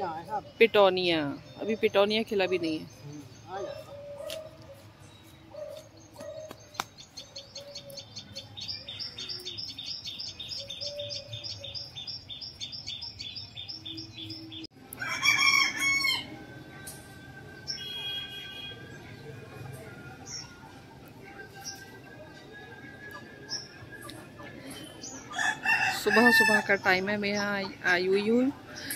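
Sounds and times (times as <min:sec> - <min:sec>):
rooster crowing: 0:14.9 - 0:16.4, 0:25.3 - 0:26.7.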